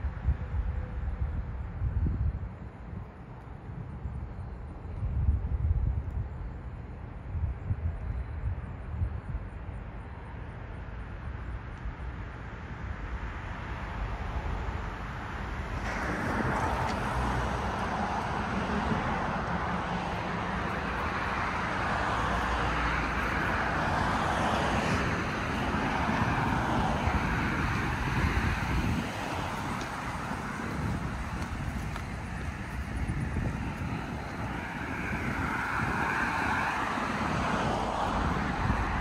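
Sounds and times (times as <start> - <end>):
low traffic rumble: 0.0 - 39.0
passing cars rushing: 12.6 - 39.0.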